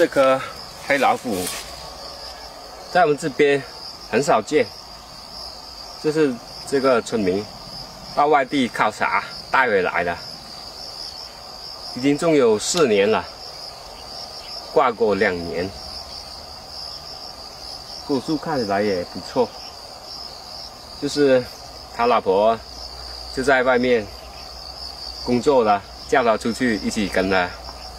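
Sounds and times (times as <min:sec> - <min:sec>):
man speaking: 0:00.0 - 0:02.0, 0:02.9 - 0:04.7, 0:06.0 - 0:07.5, 0:08.2 - 0:10.2, 0:21.0 - 0:22.7, 0:23.4 - 0:24.1, 0:25.2 - 0:27.6
high-pitched insect drone: 0:00.0 - 0:27.9.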